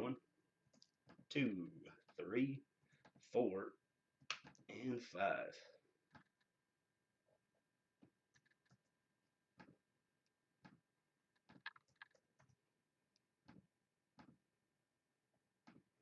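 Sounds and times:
mouse and keyboard clicks: 11.4s - 12.6s.

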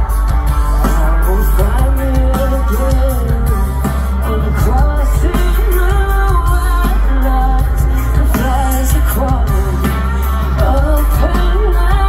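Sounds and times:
live band with woman singing: 0.0s - 12.0s.

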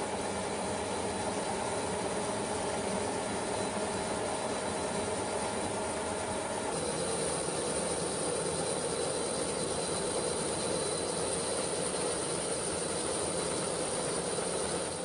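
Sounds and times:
aircraft engines droning: 6.7s - 15.0s.

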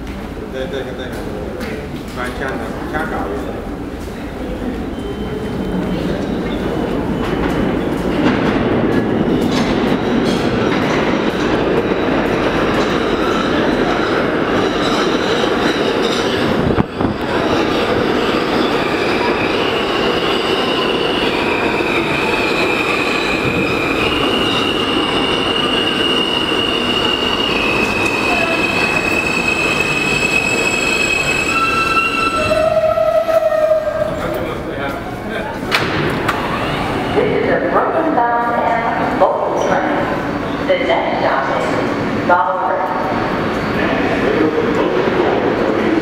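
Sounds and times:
subway train wheels rumbling: 0.0s - 46.0s.

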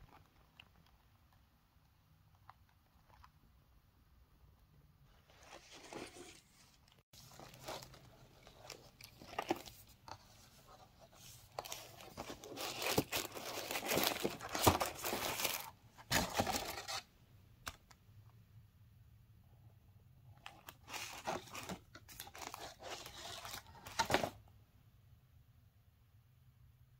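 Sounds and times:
paper packaging rustling: 5.2s - 17.1s, 20.4s - 24.4s.

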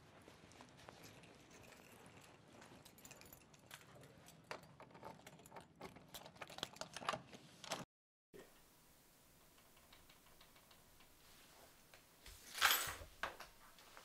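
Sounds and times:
footsteps: 0.0s - 4.2s
keys jangling: 0.6s - 6.6s.

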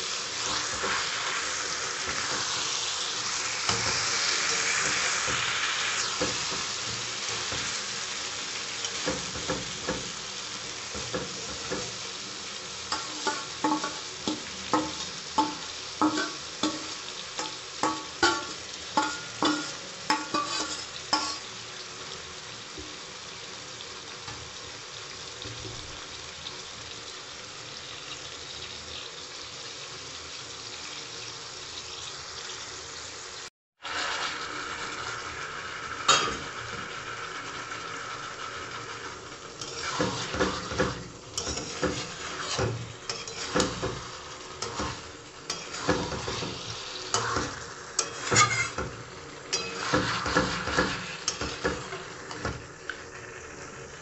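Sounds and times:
curry sizzling in a pan: 0.0s - 54.0s
spatula scraping a pan: 12.9s - 21.6s, 33.8s - 53.4s.

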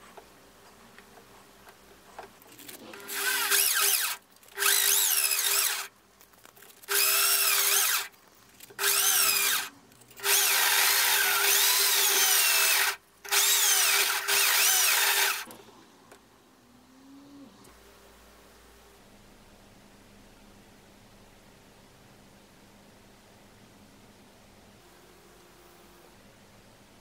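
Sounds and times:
electric drill motor: 2.7s - 5.9s, 6.9s - 8.1s, 8.8s - 15.6s.

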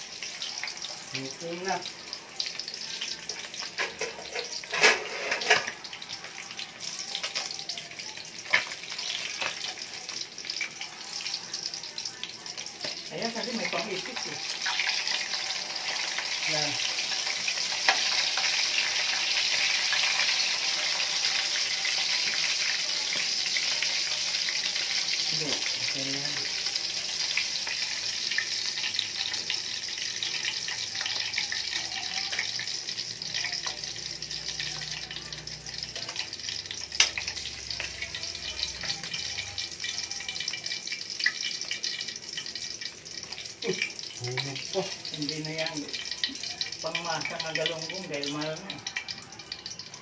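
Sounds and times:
fish sizzling in hot oil: 0.0s - 50.0s
metal ladle scraping wok: 3.8s - 5.7s.

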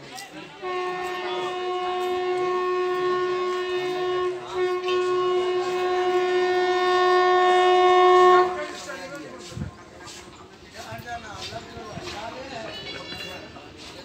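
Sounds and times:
train horn blasts: 0.6s - 9.6s.

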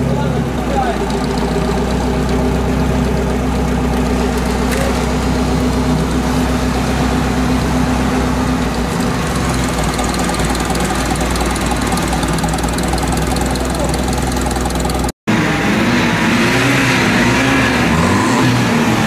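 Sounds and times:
vehicle engine idling: 0.0s - 15.6s.

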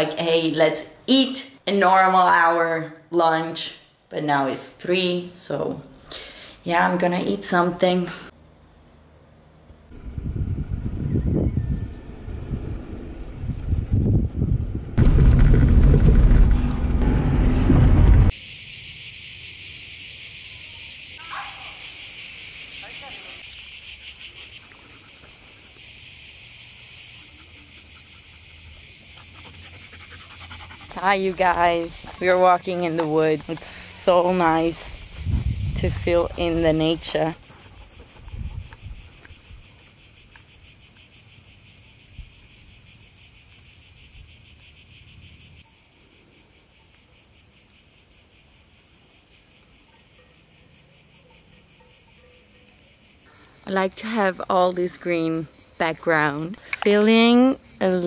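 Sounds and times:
insects chirring: 18.3s - 58.0s.

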